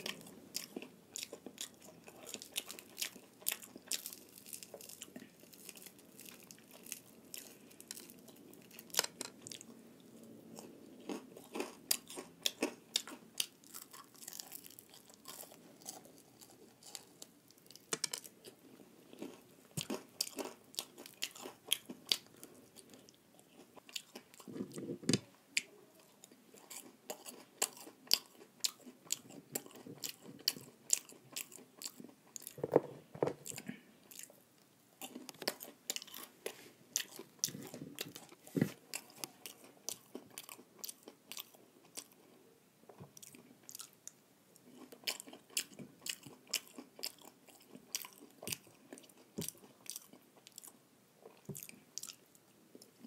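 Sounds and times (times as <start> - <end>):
person crunching fried chicken: 0.0 - 9.7, 10.6 - 18.3.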